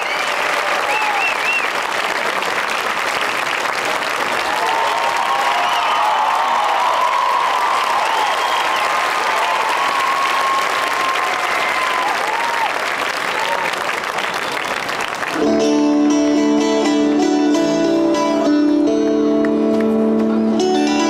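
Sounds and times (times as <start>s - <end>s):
whistles from audience: 0.0s - 1.8s, 8.0s - 9.0s
audience applauding: 0.0s - 15.6s
acoustic guitar chords: 15.4s - 21.0s.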